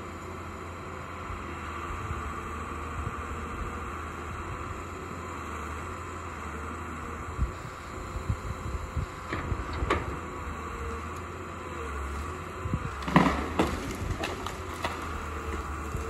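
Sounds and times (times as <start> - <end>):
diesel engine rumble: 0.0 - 16.0
sharp knocks and cracks: 13.0 - 15.8.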